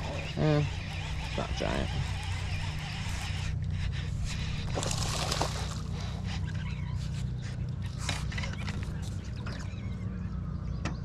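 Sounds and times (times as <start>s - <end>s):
steady low hum: 0.0s - 11.0s
water splashing: 4.5s - 6.2s.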